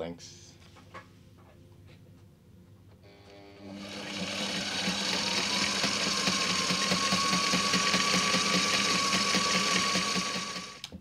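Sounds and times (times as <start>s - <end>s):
sewing machine stitching: 3.6s - 10.8s.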